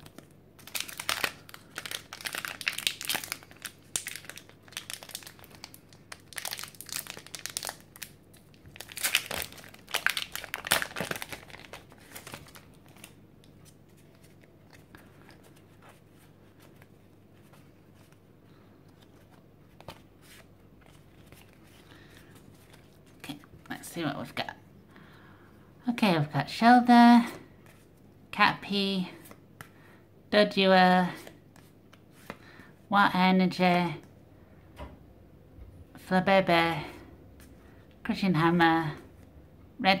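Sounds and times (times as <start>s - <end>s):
foil wrapper crinkling and tearing: 0.0s - 15.5s
faint card handling: 10.9s - 23.8s, 31.2s - 32.6s.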